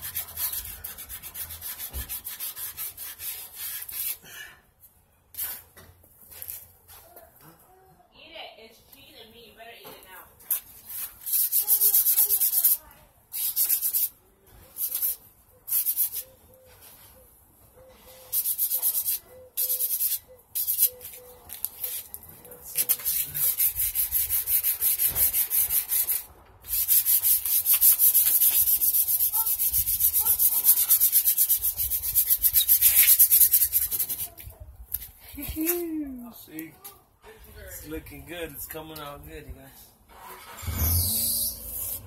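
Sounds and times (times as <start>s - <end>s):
sandpaper rubbing on metal: 0.0s - 4.2s, 10.5s - 16.3s, 18.0s - 34.4s.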